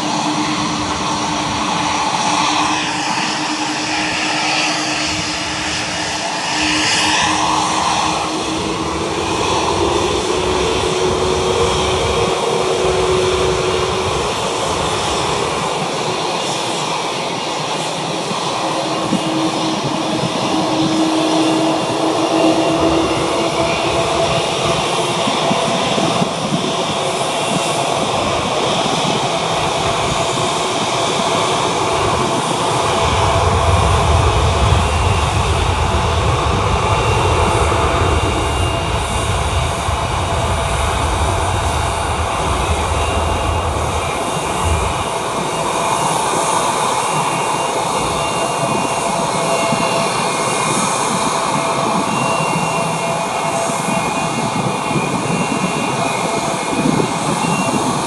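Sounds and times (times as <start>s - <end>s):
jet engines whining: 0.0s - 58.0s
deep rumble: 29.6s - 46.8s.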